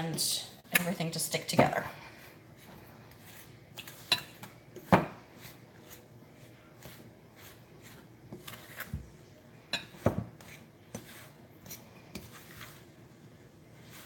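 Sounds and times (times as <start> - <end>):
fork scraping a bowl: 2.1 - 8.9, 9.8 - 12.8.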